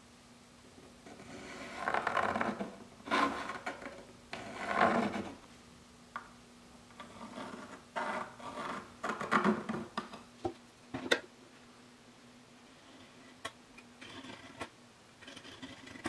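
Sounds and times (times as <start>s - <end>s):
pencil scratching on wood: 14.0s - 16.0s.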